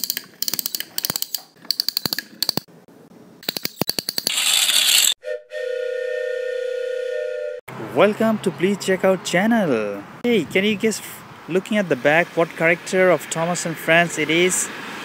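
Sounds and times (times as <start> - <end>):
sharp metallic clicks and rattles: 0.0 - 2.7, 3.4 - 5.2
steady whistle-like tone: 5.2 - 7.6.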